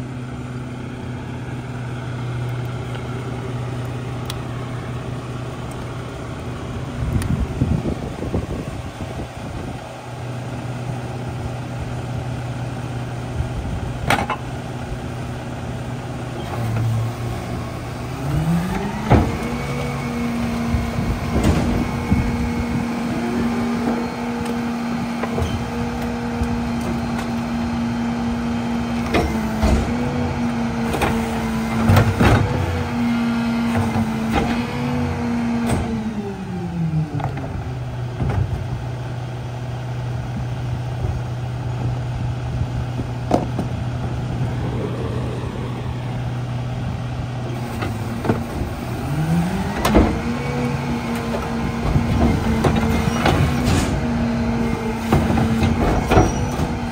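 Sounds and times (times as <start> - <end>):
garbage truck engine: 0.0 - 56.9
carts clanking and banging: 21.2 - 27.5, 47.4 - 56.9.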